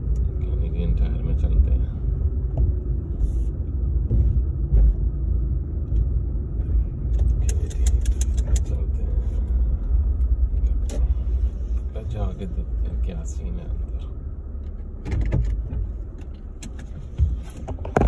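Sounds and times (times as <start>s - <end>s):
car engine and tyres rumbling: 0.0s - 18.0s
clicks and rattles: 7.2s - 8.8s.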